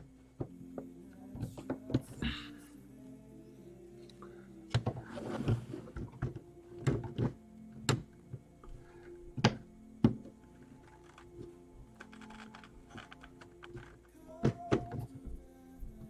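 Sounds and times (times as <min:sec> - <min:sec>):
quiet background music: 0:00.0 - 0:16.0
plastic bricks clicking: 0:09.4 - 0:15.2.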